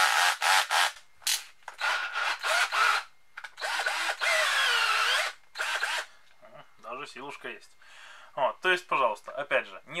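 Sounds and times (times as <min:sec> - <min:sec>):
cordless drill whining in bursts: 0:00.0 - 0:01.0, 0:01.8 - 0:06.1.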